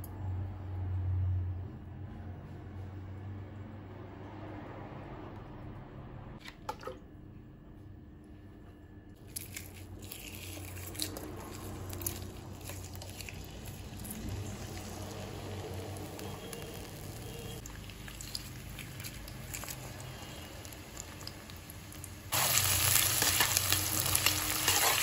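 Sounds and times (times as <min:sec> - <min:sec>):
onions sizzling in oil: 0:13.4 - 0:17.6, 0:19.5 - 0:25.0.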